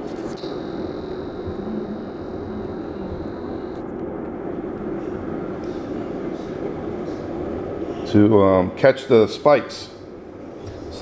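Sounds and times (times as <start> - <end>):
thin high whine: 0.0 - 4.0
pulse motor humming: 0.4 - 3.9.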